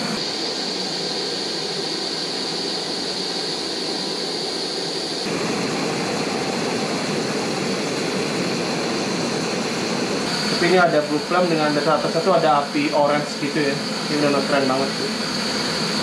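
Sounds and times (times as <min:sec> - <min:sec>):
gas stove hissing: 0:00.0 - 0:16.0.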